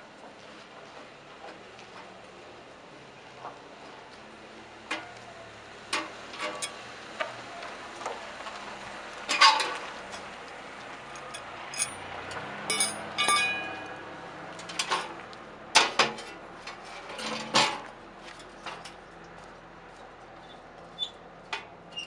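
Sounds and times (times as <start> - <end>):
metal grill parts clanking: 5.9 - 6.8, 9.3 - 10.3, 11.1 - 14.0, 14.6 - 19.0
metallic ringing: 11.2 - 12.0, 12.7 - 14.1.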